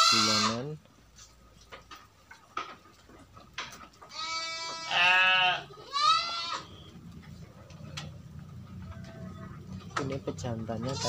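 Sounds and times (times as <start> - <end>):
sheep bleating: 0.0 - 0.6, 4.1 - 6.9.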